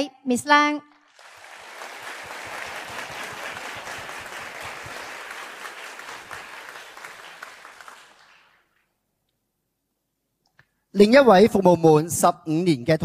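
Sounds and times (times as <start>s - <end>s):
audience applauding: 1.1s - 8.9s.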